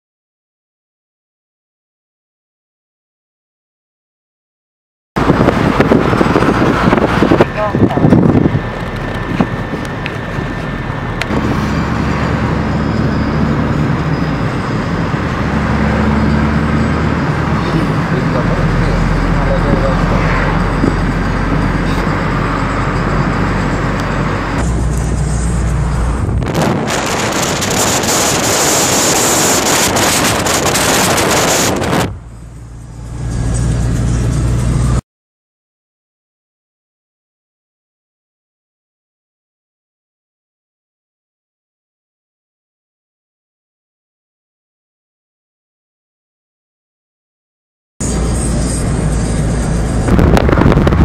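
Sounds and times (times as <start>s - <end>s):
low engine hum: 5.2s - 35.0s, 48.0s - 51.0s
road and wind noise: 5.2s - 35.0s, 48.0s - 51.0s.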